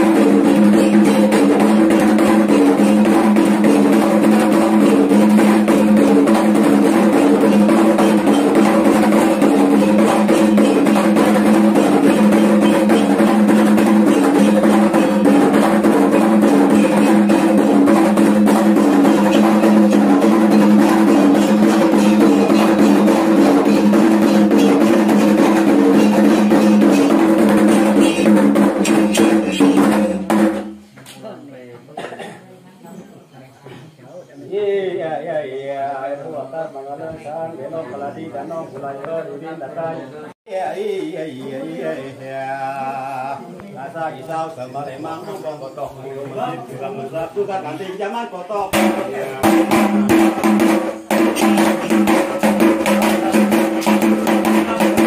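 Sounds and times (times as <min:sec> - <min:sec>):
ringing pitched percussion notes: 0:00.0 - 0:30.2
drums beaten in fast rhythm: 0:00.0 - 0:30.9, 0:48.6 - 0:55.0.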